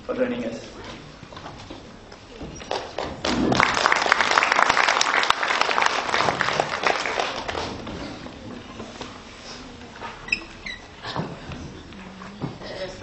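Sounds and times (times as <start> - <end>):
audience applauding: 2.7 - 8.4.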